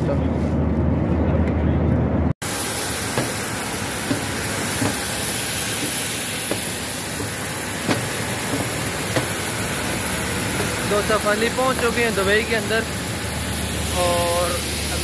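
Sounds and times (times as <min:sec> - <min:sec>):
jet airliner rushing roar: 0:00.2 - 0:15.0
thin high whine: 0:09.6 - 0:15.0.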